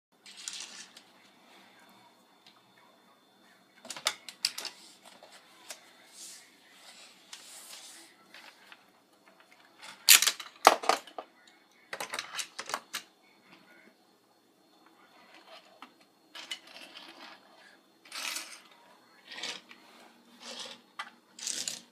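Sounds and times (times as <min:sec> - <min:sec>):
plastic toy pieces clattering: 0:00.2 - 0:01.1, 0:09.4 - 0:11.3, 0:11.9 - 0:13.1, 0:18.1 - 0:19.8, 0:20.4 - 0:21.9.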